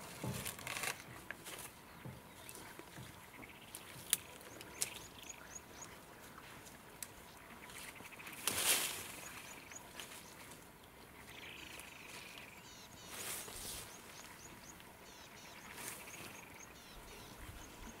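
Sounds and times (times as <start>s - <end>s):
elephant trunk rustling leaves: 0.0s - 1.8s, 8.3s - 10.7s, 12.0s - 14.4s
small birds chirping: 0.8s - 18.0s.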